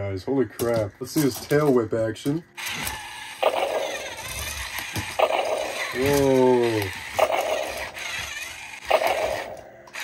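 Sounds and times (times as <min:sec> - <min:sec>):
toy motor and gears whirring: 0:00.6 - 0:10.0.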